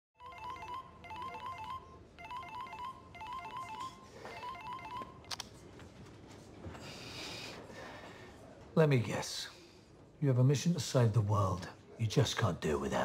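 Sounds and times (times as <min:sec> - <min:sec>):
mobile phone ringtone beeping: 0:00.2 - 0:05.3.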